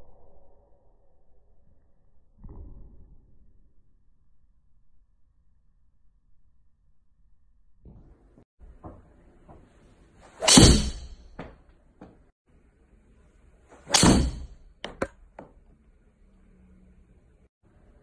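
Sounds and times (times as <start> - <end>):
golf club striking ball: 10.4 - 11.3, 13.8 - 15.5.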